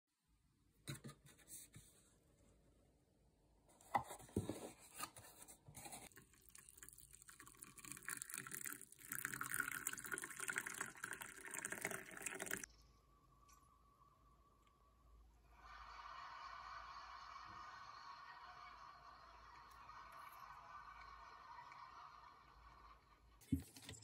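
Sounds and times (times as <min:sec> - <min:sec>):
water pouring into a mug: 0:06.1 - 0:12.7.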